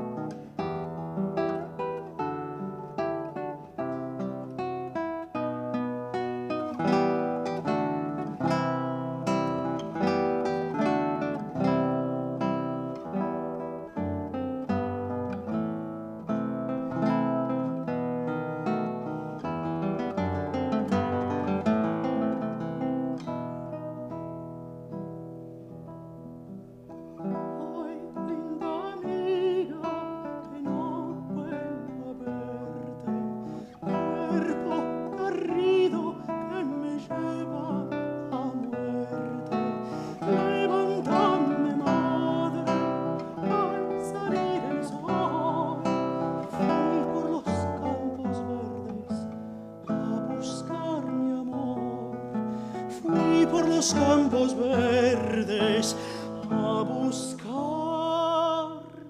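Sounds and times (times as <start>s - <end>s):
classical guitar fingerpicking: 0.0s - 59.0s
countertenor singing with vibrato: 27.3s - 52.3s, 52.9s - 59.0s.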